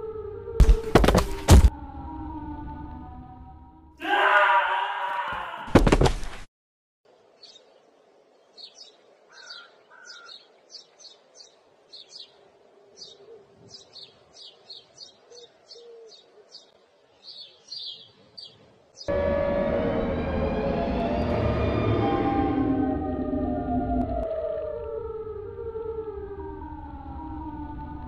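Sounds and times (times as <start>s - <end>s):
birds chirping: 7.1s - 19.2s
loud siren-like wail: 19.1s - 28.0s.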